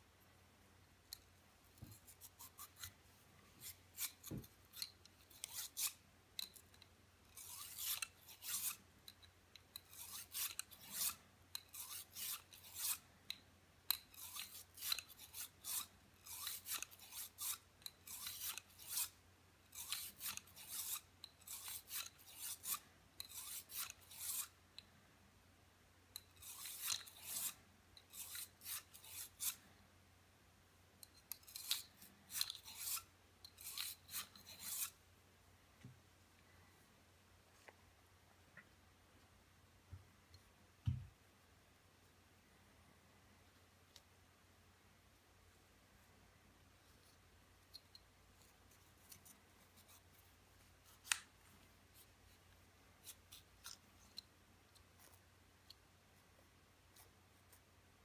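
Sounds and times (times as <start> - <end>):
brush scrubbing pistol parts: 3.6 - 13.0, 14.0 - 24.6, 26.2 - 29.6, 31.1 - 35.0.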